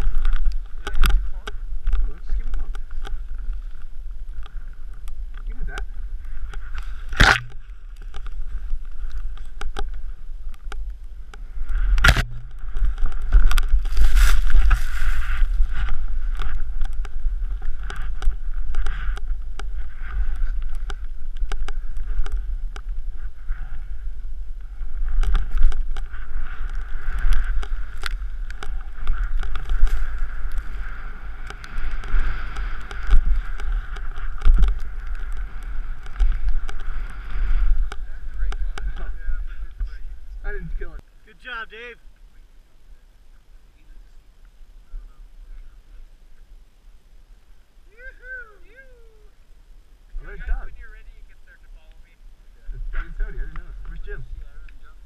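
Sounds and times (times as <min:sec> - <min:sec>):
wind rumble on camera: 0:00.0 - 0:41.0, 0:42.3 - 0:55.0
snowboard swishing through powder: 0:13.9 - 0:15.7.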